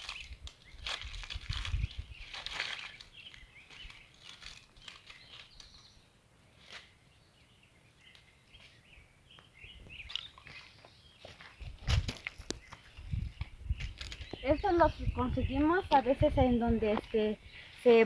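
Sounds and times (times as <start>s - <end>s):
stems snapping: 0.0s - 5.8s
leaves rustling: 0.0s - 7.2s, 9.9s - 18.0s
faint birds chirping: 0.0s - 18.0s.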